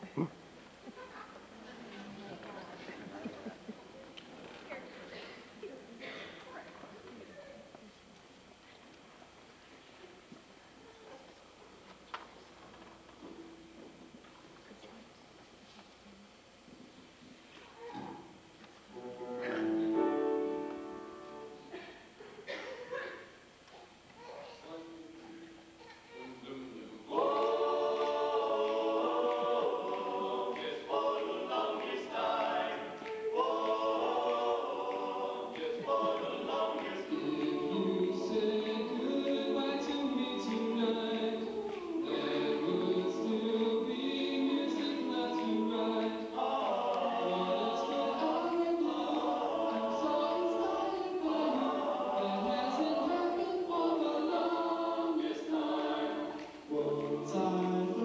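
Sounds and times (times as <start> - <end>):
men's choir singing a cappella: 26.8 - 58.0.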